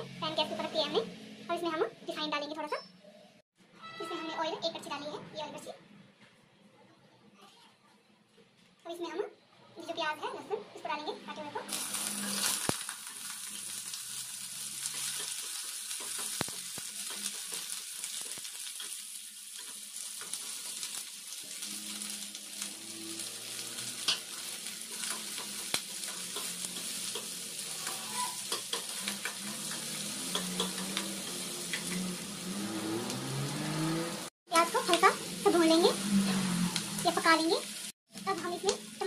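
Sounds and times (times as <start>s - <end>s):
onions sizzling in oil: 11.7s - 39.0s
metal ladle scraping a pan: 23.2s - 31.9s.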